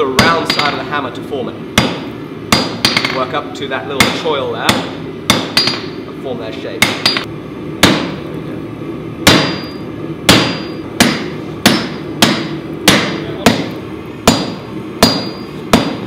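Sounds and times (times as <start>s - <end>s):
hammer striking metal on anvil: 0.0s - 0.8s, 1.8s - 3.3s, 4.0s - 6.0s, 6.8s - 8.2s, 9.2s - 16.0s.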